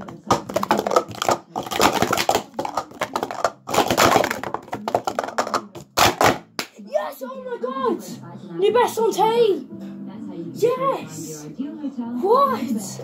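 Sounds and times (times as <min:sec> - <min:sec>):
plastic cups clattering: 0:00.0 - 0:06.7.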